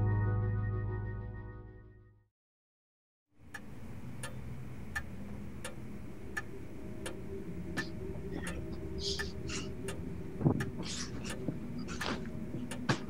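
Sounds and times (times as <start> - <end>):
low steady hum: 3.4 - 13.0
clock ticking: 3.5 - 13.0.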